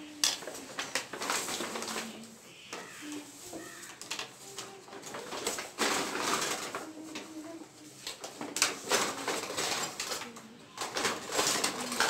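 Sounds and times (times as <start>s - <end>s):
shopping bags rustling: 0.0s - 12.0s
faint low cooing calls: 1.5s - 5.5s.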